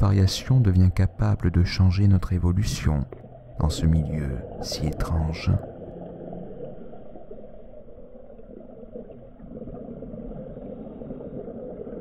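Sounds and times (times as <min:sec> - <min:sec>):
muffled underwater rumble: 0:00.0 - 0:12.0.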